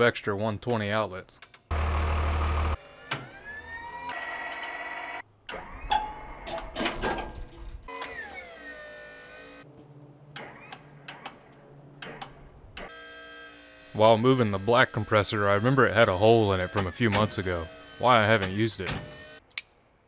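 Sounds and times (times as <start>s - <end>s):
crane motor whining: 1.7s - 6.7s, 7.9s - 19.4s
metal clanks and knocks: 5.9s - 7.8s.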